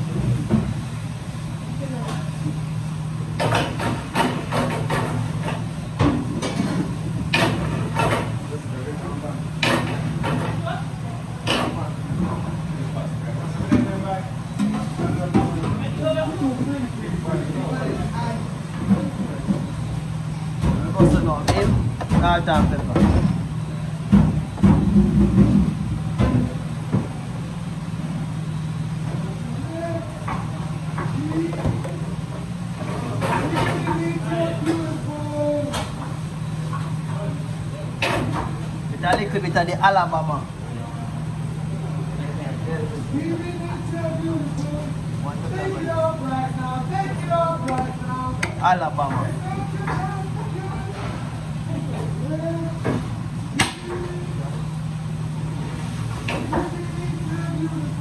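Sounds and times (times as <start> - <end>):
extraction hood fan humming: 0.0 - 58.0
extractor hood humming: 43.0 - 58.0.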